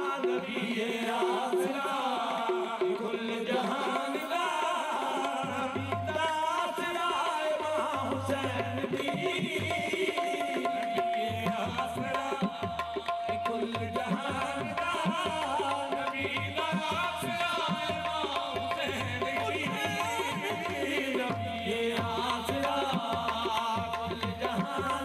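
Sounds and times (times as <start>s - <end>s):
hand drum rhythm: 7.8s - 25.0s.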